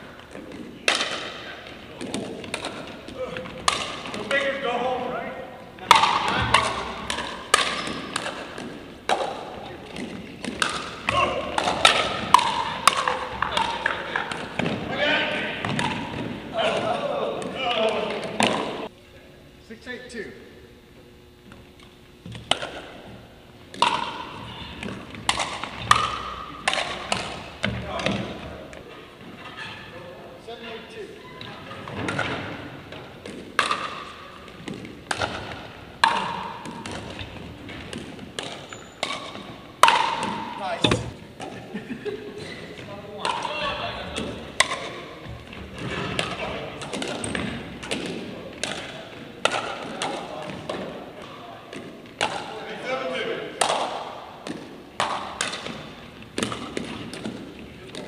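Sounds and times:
paddles striking plastic ball: 53.6s - 58.0s.

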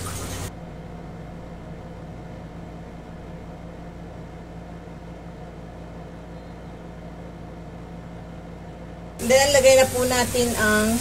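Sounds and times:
electrical hum with fan noise: 0.0s - 11.0s.

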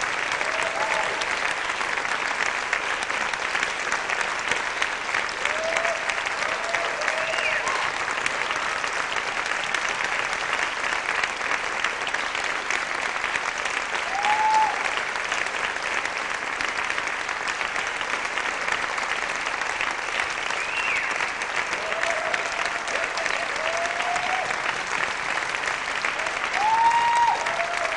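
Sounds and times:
audience applauding: 0.0s - 27.9s
short cheers: 0.4s - 1.3s, 5.4s - 8.0s, 14.0s - 14.9s, 21.7s - 24.6s, 26.2s - 27.9s.

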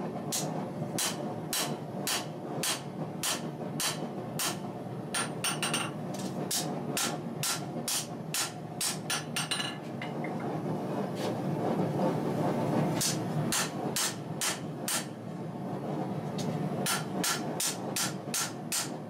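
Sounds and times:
hammer striking steel on anvil: 0.3s - 4.6s, 5.2s - 10.4s, 13.0s - 15.1s, 16.8s - 18.9s.

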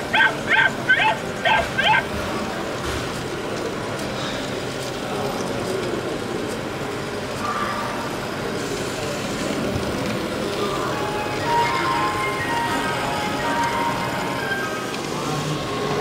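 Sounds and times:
indistinct voices talking: 0.0s - 2.8s.

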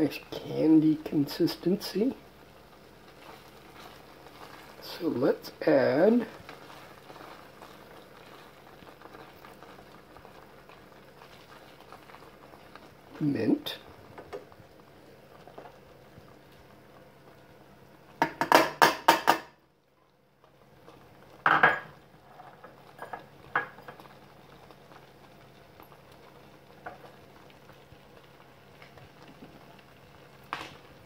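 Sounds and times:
faint steady hum: 0.0s - 31.0s
spoon knocking on a pan: 18.2s - 19.5s.

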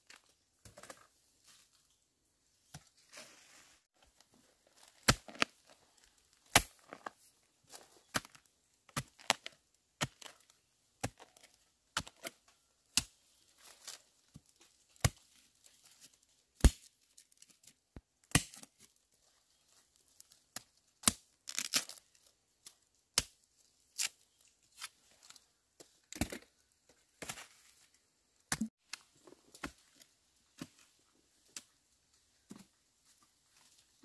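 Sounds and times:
bamboo shoots snapping: 21.0s - 23.4s
tearing and crinkling: 21.4s - 22.2s.

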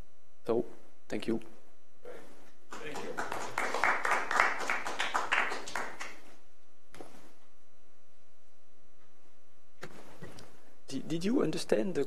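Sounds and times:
faint room hum: 0.0s - 12.0s
audience applauding: 2.7s - 6.2s.

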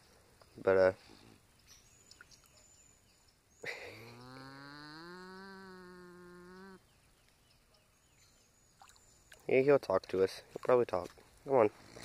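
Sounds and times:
animal moo-like call: 4.0s - 6.8s.

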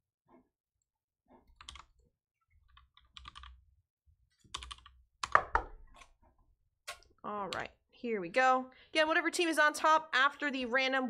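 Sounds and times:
typing on computer keyboard: 1.6s - 1.9s, 2.7s - 3.6s, 4.5s - 5.4s.

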